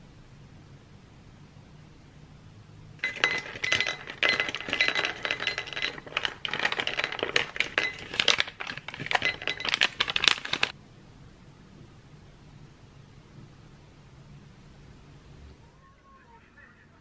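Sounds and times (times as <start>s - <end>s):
small balls clinking into a bowl: 3.0s - 10.7s.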